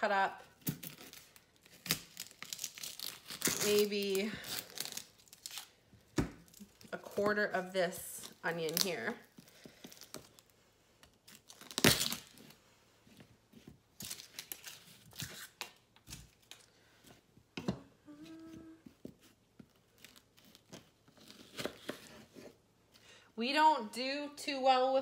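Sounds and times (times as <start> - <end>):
onion skin crinkling and tearing: 0.4 - 12.6, 13.9 - 16.8, 19.6 - 22.0.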